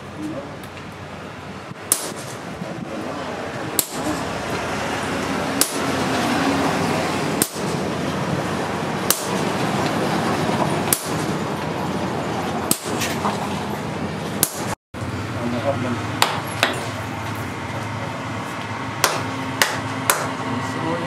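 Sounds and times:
steady background noise: 0.0 - 21.0
hammer striking metal: 1.8 - 2.5, 3.7 - 4.6, 5.5 - 6.0, 7.3 - 7.9, 9.0 - 9.6, 10.8 - 11.4, 12.6 - 13.3, 14.4 - 14.8, 16.2 - 17.0, 19.0 - 20.4.

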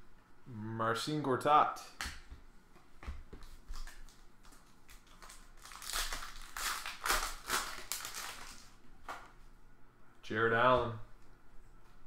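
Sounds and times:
foil wrapper crinkling and tearing: 3.7 - 8.8.

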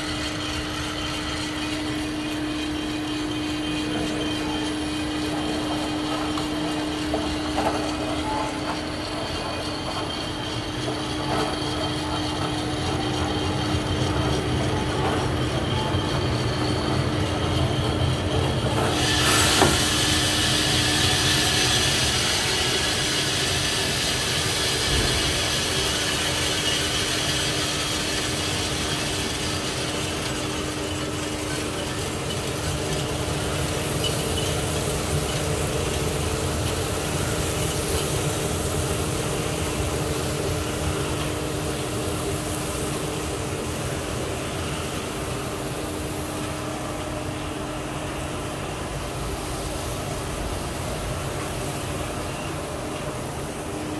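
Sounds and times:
coffee roaster humming: 0.0 - 53.9
hiss with a click: 18.9 - 25.7.

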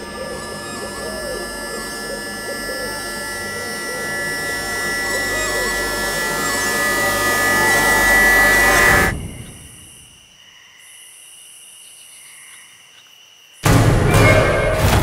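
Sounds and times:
loud sustained drone: 0.0 - 9.9
crickets chirring: 0.0 - 13.7.

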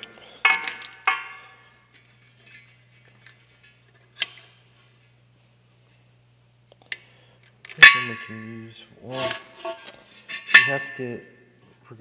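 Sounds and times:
metal hardware tapping on steel: 0.0 - 1.6, 6.9 - 8.5, 9.2 - 11.1
low steady hum: 0.0 - 12.0
sharp metallic clink: 6.9 - 8.5, 10.4 - 11.2.

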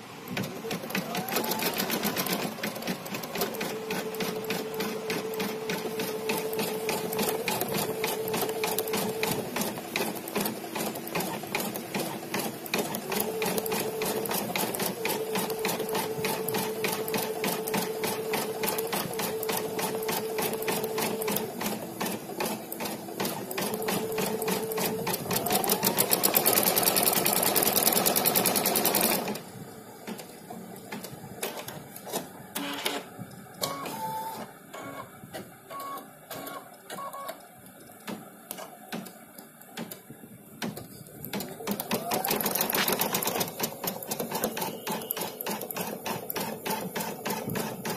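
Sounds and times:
quiet machine clicks: 36.7 - 47.9
short machine tones: 44.3 - 45.8.

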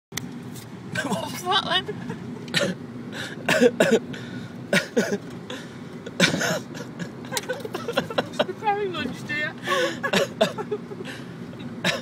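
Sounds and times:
car cabin hum: 0.2 - 12.0
person coughing: 2.5 - 2.8, 3.5 - 4.1, 4.7 - 5.2, 6.2 - 7.1, 10.0 - 10.7.

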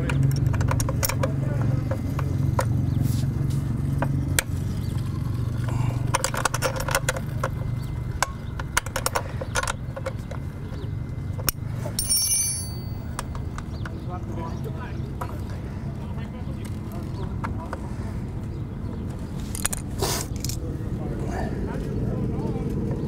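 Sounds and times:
hand tools clinking on metal: 11.5 - 13.5
metallic ring: 12.0 - 13.2.

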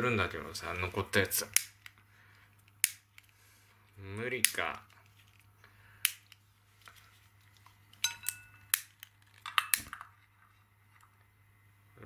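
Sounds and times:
lighter clicking: 2.8 - 3.2
metallic ring: 8.0 - 8.7.

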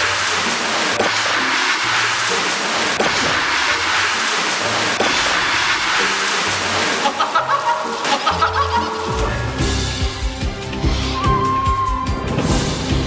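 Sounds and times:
water splashing: 0.0 - 9.9
background music with light beat: 4.6 - 13.0.

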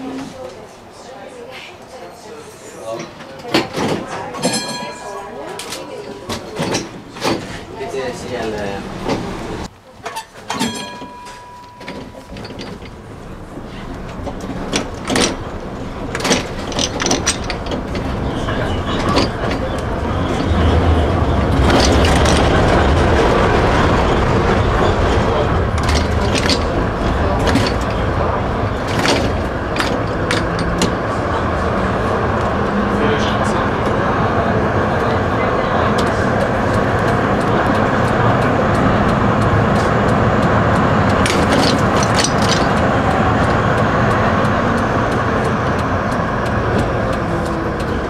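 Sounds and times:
tram running rumble: 0.0 - 48.0
wheels clicking over rail joints: 2.9 - 48.0.

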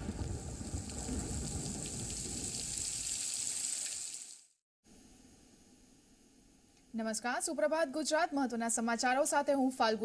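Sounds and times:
raindrop ticks: 0.0 - 4.0
rain hissing: 0.0 - 4.6.

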